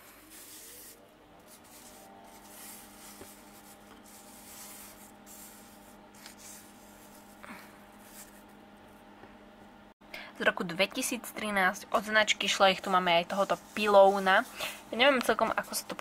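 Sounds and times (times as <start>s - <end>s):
hand rubbing plastic toy: 0.0s - 7.4s, 8.0s - 8.6s, 12.8s - 15.4s
faint hum: 0.0s - 16.0s.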